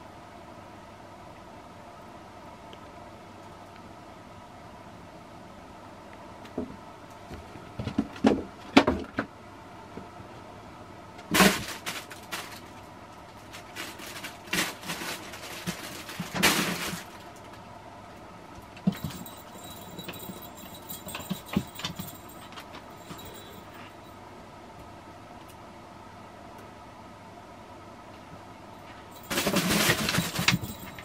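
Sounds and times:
fabric rustling and crinkling: 13.4s - 17.4s.

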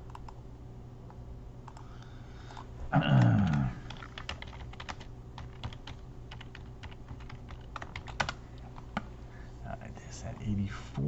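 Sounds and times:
computer keyboard typing: 3.2s - 8.4s.

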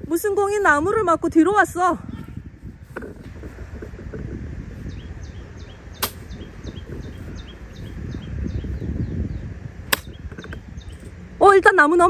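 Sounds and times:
wind rumbling on microphone: 0.0s - 12.0s
bird chirping: 4.8s - 11.2s
sharp click: 9.9s - 10.6s.

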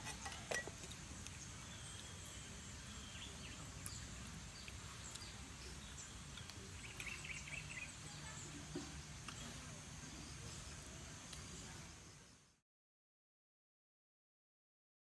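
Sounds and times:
faint background hiss: 0.0s - 12.6s
faint bird chirps: 0.3s - 12.6s.

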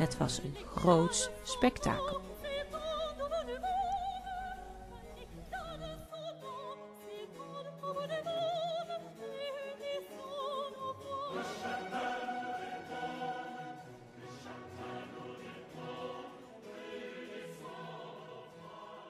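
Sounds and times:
operatic solo singing: 9.7s - 19.0s
orchestral accompaniment: 11.2s - 18.3s.

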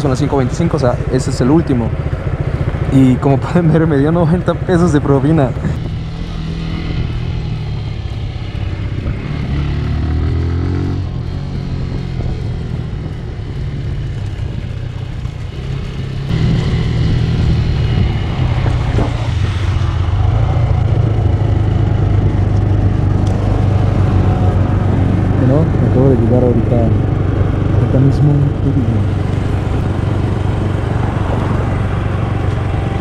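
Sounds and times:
motorcycle engine running: 0.0s - 33.0s.

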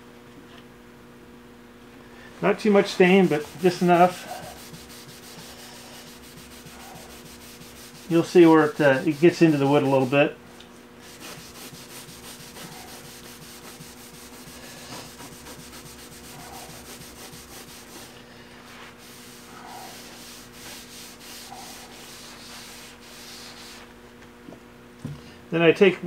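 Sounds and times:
steady low hum: 0.0s - 26.0s
rag rubbing on wood: 2.6s - 10.4s, 11.0s - 23.9s.

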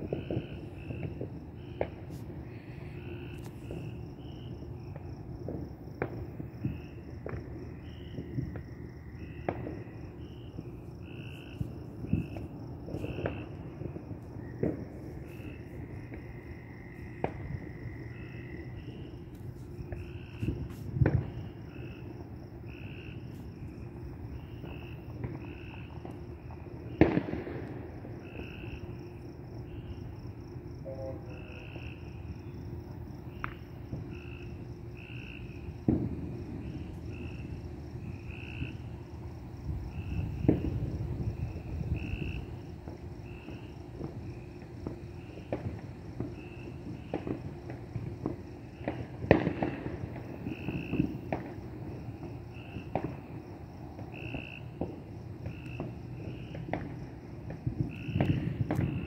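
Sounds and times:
crickets and night insects trilling: 0.0s - 59.0s
fireworks banging: 9.2s - 21.9s, 24.4s - 28.0s, 35.8s - 37.5s, 39.9s - 59.0s.

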